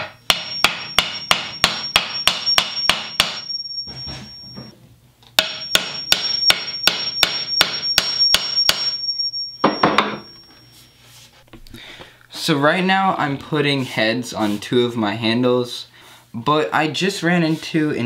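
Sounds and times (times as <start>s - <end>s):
hammer striking axe head: 0.0s - 3.5s, 5.4s - 9.0s, 9.6s - 10.3s
thin high ringing note: 0.4s - 4.7s, 5.5s - 11.2s.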